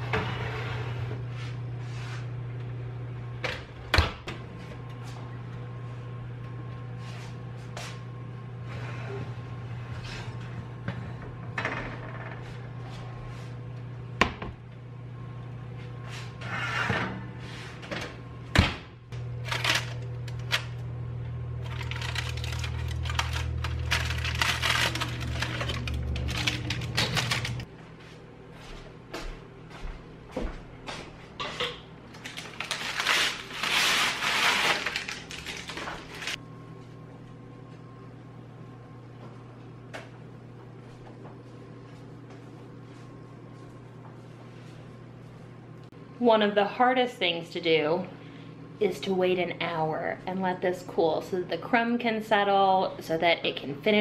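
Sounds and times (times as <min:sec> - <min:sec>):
pot scraping on oven rack: 0:00.0 - 0:01.3, 0:16.2 - 0:17.8
steady low hum: 0:00.0 - 0:54.0
parchment paper crinkling: 0:21.6 - 0:27.7, 0:32.2 - 0:36.4.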